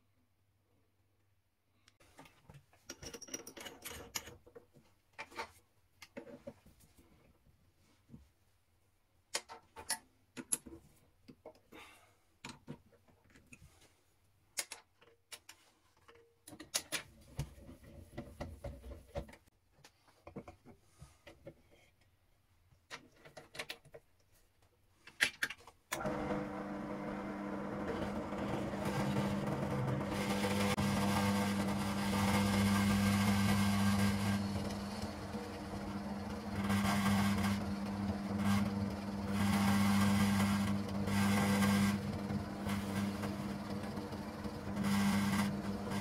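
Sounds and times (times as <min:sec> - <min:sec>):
drill press motor humming: 0:26.0 - 0:46.0.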